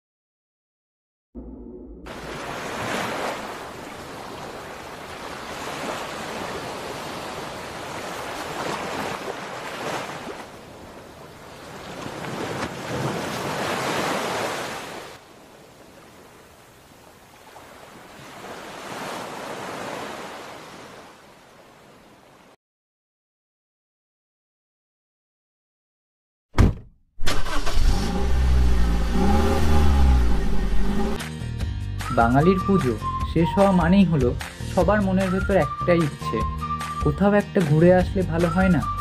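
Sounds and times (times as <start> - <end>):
wind: 1.4 - 22.6
ocean waves breaking: 2.1 - 22.6.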